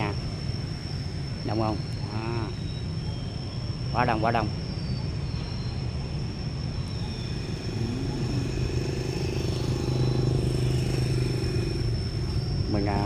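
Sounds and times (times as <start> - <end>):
thin high whine: 0.0 - 13.0
engine humming: 6.3 - 13.0.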